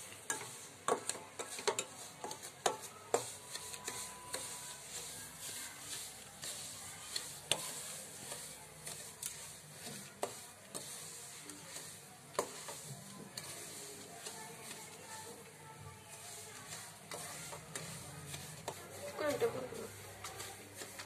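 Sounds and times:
faint sizzle: 0:00.0 - 0:21.0
wooden spatula scraping semolina: 0:00.0 - 0:21.0
spatula clicking against pan: 0:00.3 - 0:04.0.

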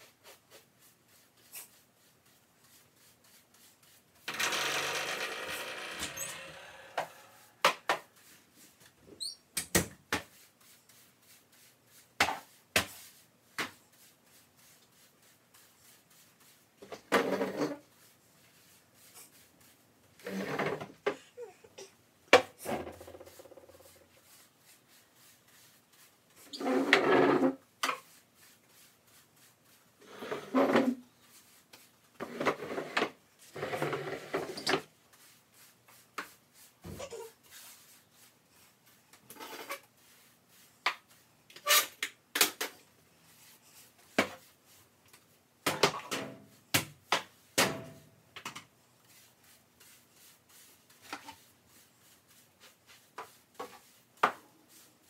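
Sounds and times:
scraping and rubbing: 0:00.0 - 0:08.8, 0:22.6 - 0:42.0.

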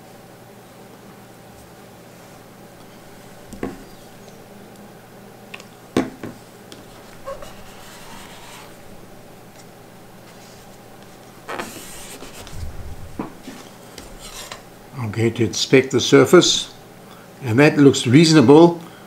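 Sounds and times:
soft knocks: 0:03.5 - 0:03.9
gauze pad rubbing on metal: 0:06.8 - 0:08.9, 0:10.2 - 0:12.7.

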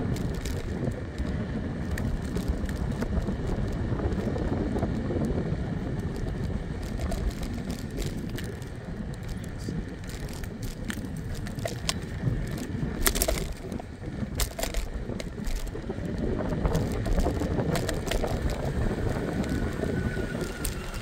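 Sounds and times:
scooter wheels on pavement: 0:00.0 - 0:21.0
sharp clicks and knocks: 0:06.1 - 0:21.0.

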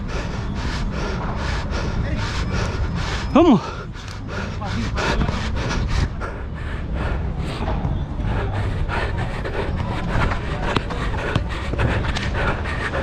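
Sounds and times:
running footsteps: 0:00.0 - 0:13.0
wind rumble: 0:00.0 - 0:13.0.

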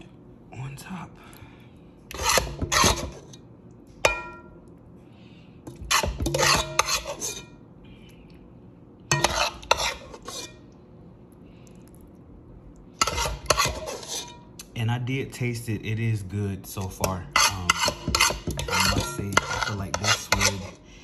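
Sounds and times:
spoon scraping baking dish: 0:02.1 - 0:03.4, 0:05.7 - 0:07.5, 0:09.1 - 0:10.6, 0:13.0 - 0:14.5, 0:16.8 - 0:20.8.

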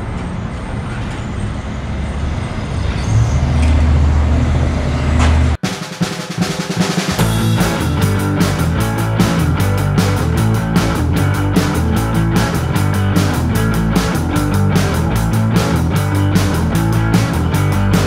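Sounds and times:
street traffic noise: 0:00.0 - 0:05.6
vehicle low rumble: 0:00.0 - 0:05.6
rock music with drums: 0:05.5 - 0:18.0.

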